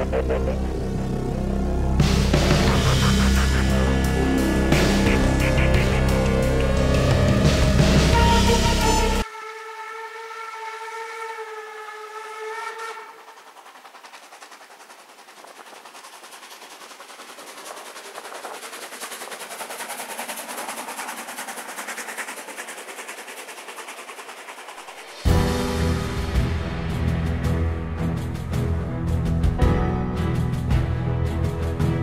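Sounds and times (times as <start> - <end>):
music: 0.0 - 10.6, 25.2 - 32.0
steam locomotive exhaust hissing: 1.4 - 9.2.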